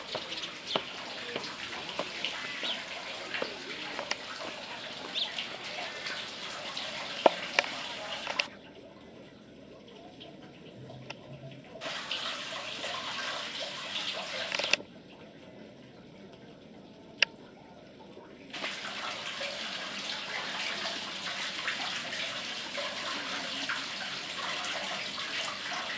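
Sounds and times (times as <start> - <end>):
water trickling over rocks: 0.0 - 25.9.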